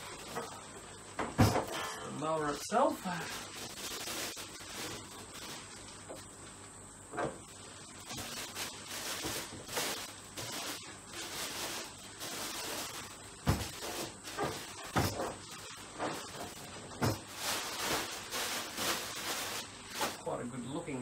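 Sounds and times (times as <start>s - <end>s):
plastic bag crinkling: 2.7s - 6.7s, 7.4s - 20.3s
dull thumps: 13.4s - 17.3s.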